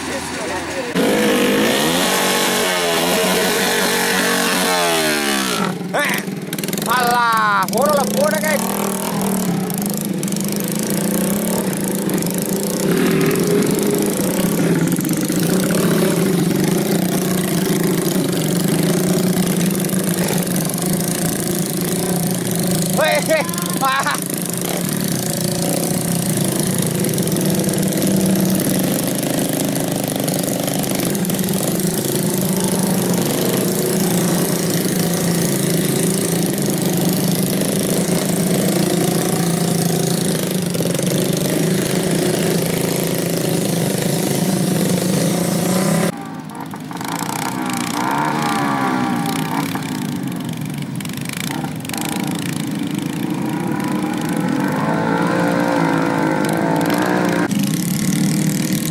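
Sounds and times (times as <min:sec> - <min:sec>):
small motorcycle engines: 0:00.0 - 0:58.9
trail bike engine revving: 0:00.0 - 0:58.9.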